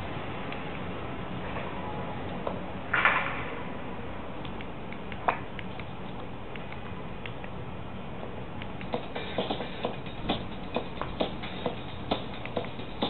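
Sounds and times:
paws tapping laptop keys: 12.1s - 12.9s.

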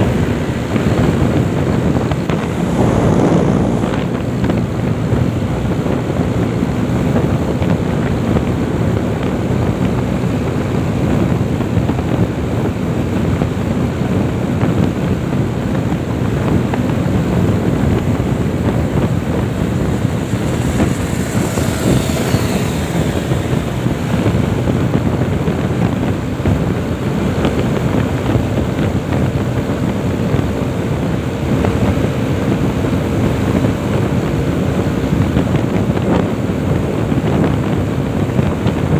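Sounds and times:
motorcycle engine: 0.0s - 38.9s
road noise: 0.0s - 38.9s
wind rushing over microphone: 0.0s - 38.9s
faint high whine: 2.0s - 4.9s, 18.3s - 24.8s.

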